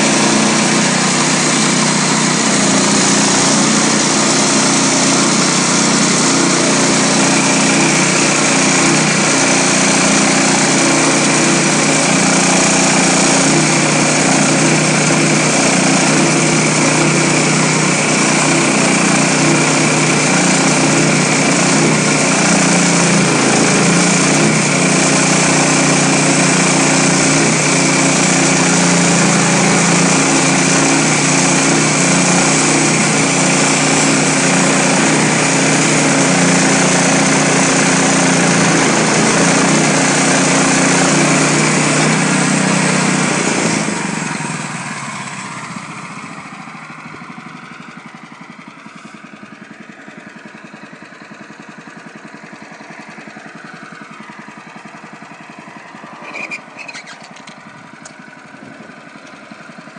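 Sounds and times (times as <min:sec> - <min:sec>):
small gas engine under load: 0:00.0 - 0:59.9
band blade high whine: 0:56.2 - 0:57.6.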